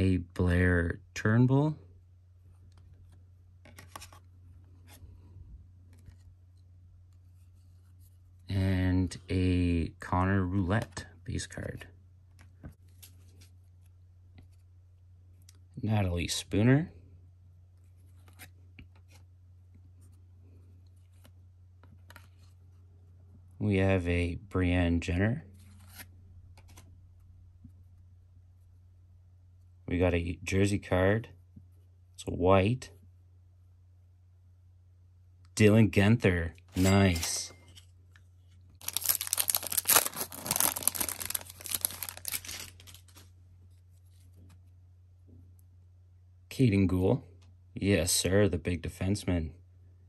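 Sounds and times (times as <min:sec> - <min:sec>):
trading cards rubbing and flipping: 0:02.6 - 0:05.1, 0:05.9 - 0:08.4, 0:17.8 - 0:19.3, 0:25.6 - 0:26.9, 0:38.5 - 0:44.7
foil wrapper crinkling and tearing: 0:38.8 - 0:43.3.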